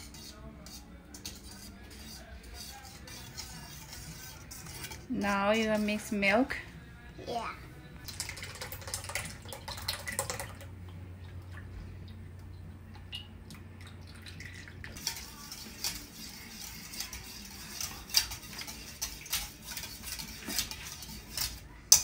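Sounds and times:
wire whisk clinking in metal bowl: 0.0s - 6.2s, 8.0s - 10.6s, 14.4s - 22.0s
low steady hum: 4.7s - 17.5s.

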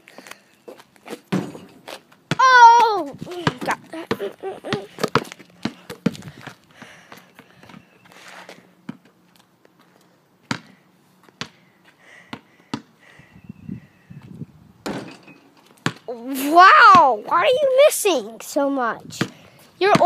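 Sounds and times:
ball striking hoop: 1.3s - 2.6s, 14.8s - 16.0s
basketball bouncing on concrete: 1.3s - 7.8s, 10.4s - 11.6s, 12.3s - 12.9s, 14.8s - 15.2s, 15.8s - 16.1s, 19.1s - 20.0s.

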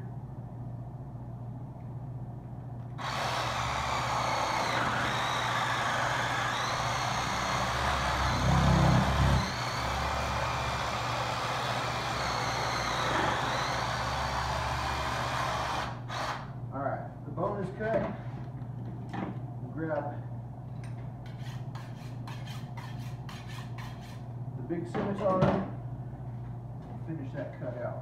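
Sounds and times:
reciprocating saw cutting bone: 21.3s - 24.2s.

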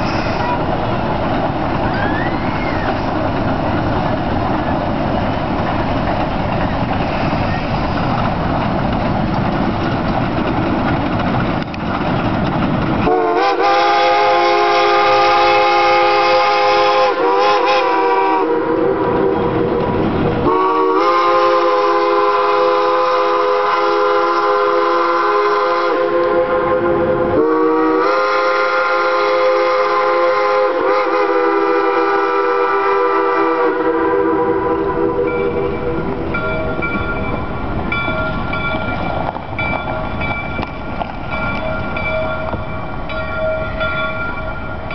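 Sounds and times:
rumble of moving train: 0.0s - 44.9s
steam locomotive whistle: 1.8s - 3.2s, 13.0s - 36.8s.

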